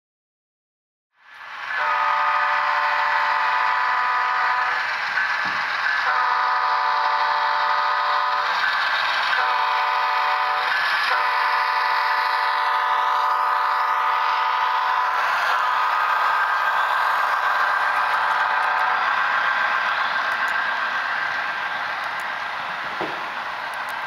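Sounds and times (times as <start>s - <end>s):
train running noise: 1.2s - 24.0s
locomotive air horn blasts: 1.8s - 4.7s, 6.0s - 8.4s, 9.4s - 11.9s.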